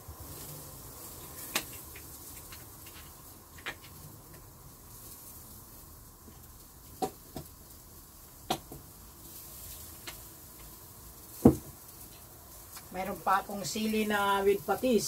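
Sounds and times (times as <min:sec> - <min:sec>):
faint steady hiss: 0:00.0 - 0:15.0
dishes knocking and clinking: 0:11.4 - 0:11.7.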